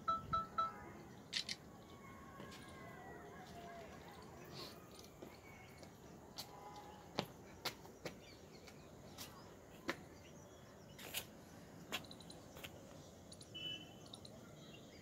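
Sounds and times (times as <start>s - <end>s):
faint open-air ambience: 0.0s - 15.0s
sharp clicks: 1.3s - 1.7s.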